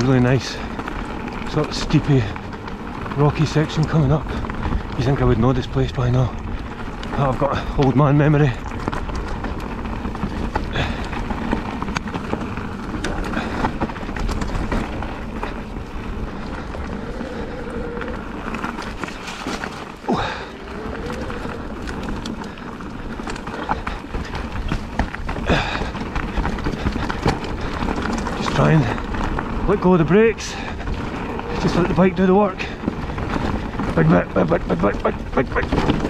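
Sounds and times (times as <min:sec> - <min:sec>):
bike clattering over rocks: 0:00.0 - 0:17.4, 0:18.2 - 0:36.0
strong wind buffeting microphone: 0:00.0 - 0:36.0.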